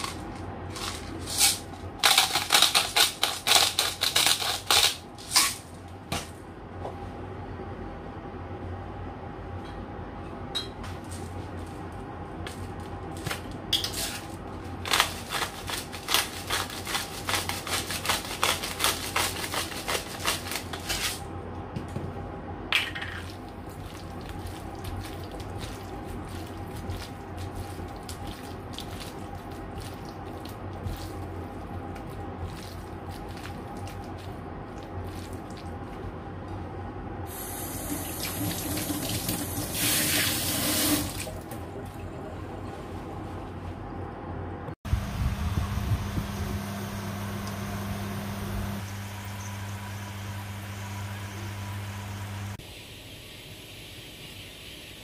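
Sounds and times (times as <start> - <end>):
wet squelches of kneading chicken: 23.3 - 36.8.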